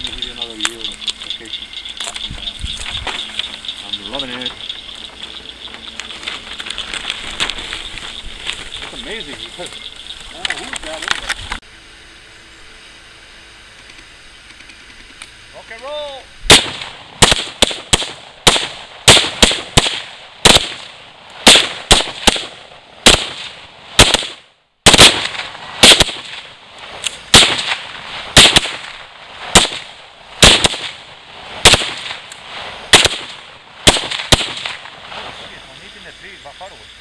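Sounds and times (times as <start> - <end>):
rifles firing single shots: 16.5 - 35.2.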